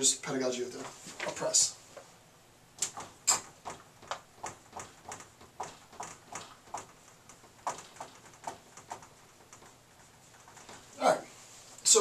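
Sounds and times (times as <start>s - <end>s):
marker squeaking on whiteboard: 2.8s - 11.2s.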